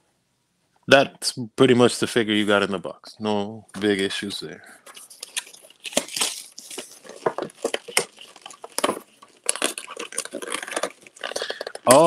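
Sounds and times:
cardboard box crackling and clicking: 0:04.9 - 0:12.0.

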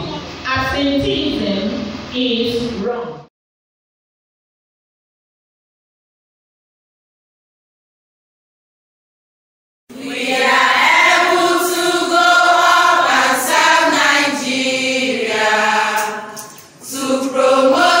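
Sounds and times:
group of voices singing in chorus: 0:09.9 - 0:18.0.

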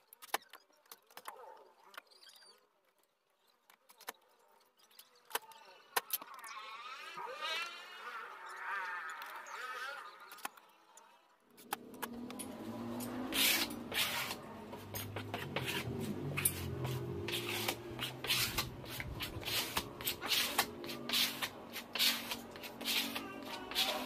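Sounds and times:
spreader scraping glue on wood: 0:13.1 - 0:24.0.

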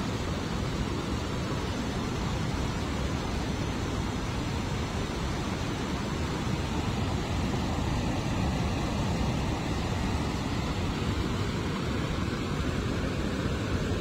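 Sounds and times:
floodwater rushing from spillway: 0:00.0 - 0:14.0.

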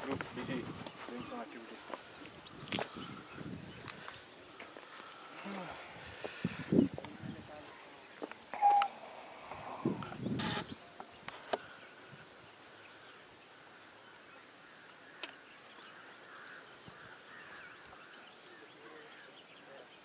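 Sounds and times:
high-pitched insect drone: 0:00.1 - 0:18.5
bird chirps: 0:07.6 - 0:13.2.

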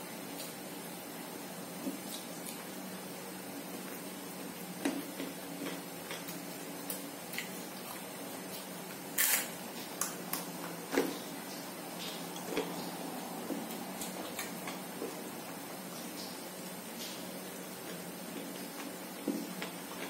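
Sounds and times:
person chewing and lip smacking: 0:09.9 - 0:15.2.

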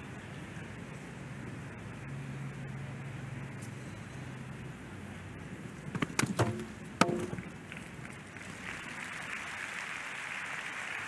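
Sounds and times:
wooden rail knocks and clatters: 0:05.9 - 0:07.5
crowd applause: 0:07.6 - 0:11.0.

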